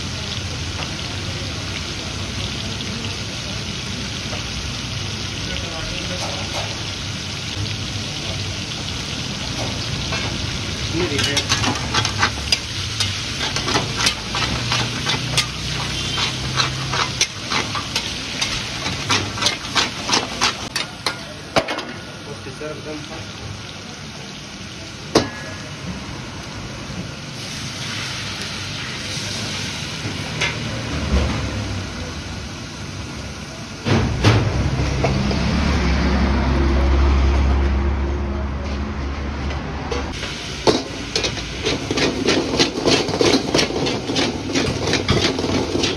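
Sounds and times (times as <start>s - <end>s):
food sizzling: 0.0s - 37.2s, 40.1s - 45.9s
metal ladle scraping a pan: 11.0s - 21.4s, 40.7s - 45.9s.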